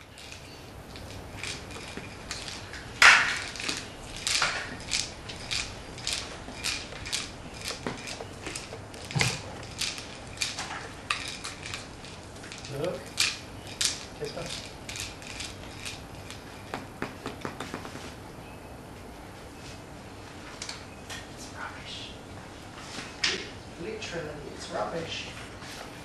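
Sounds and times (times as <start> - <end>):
kibble rattling inside toy: 0.0 - 17.7.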